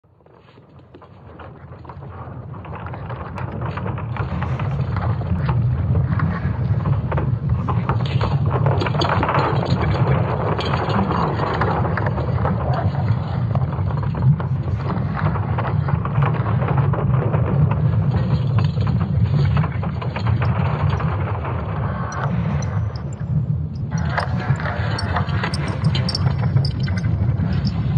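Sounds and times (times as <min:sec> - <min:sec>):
dense continuous crackling: 0:00.2 - 0:27.9
low steady rumble: 0:17.2 - 0:27.9.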